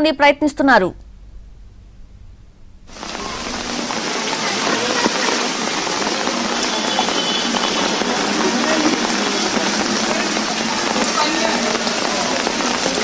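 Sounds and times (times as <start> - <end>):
heavy rain on flooded street: 2.9 - 13.0.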